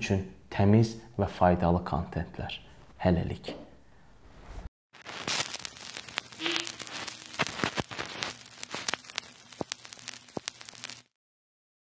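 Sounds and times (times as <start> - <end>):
crackles and pops: 4.9 - 11.2
steady hiss: 5.0 - 11.1.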